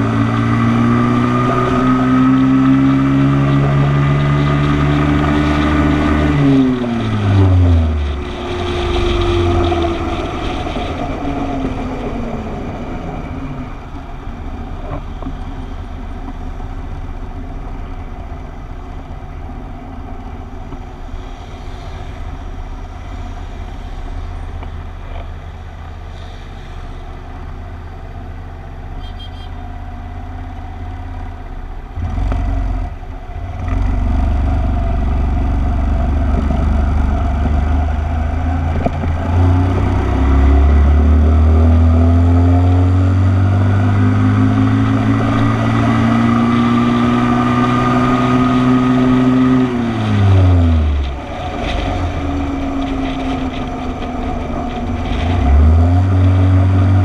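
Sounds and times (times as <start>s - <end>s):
motorcycle engine accelerating: 0.0s - 13.6s, 32.0s - 57.0s.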